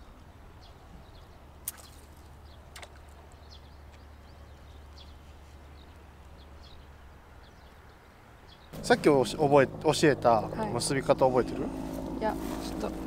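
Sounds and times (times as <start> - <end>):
small birds chirping: 0.0 - 13.0
steady low rumble: 8.8 - 13.0.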